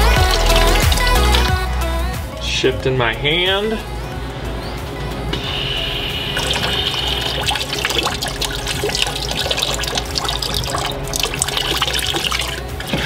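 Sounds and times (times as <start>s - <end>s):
glaze trickling into a bucket: 0.0s - 1.5s, 6.4s - 13.0s.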